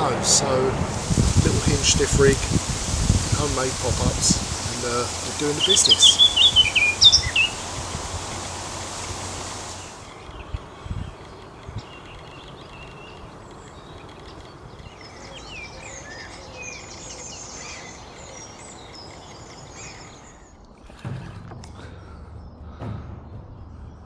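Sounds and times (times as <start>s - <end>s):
outdoor background hiss: 0.0s - 20.8s
birds chirping and singing: 1.4s - 9.0s, 9.7s - 20.6s.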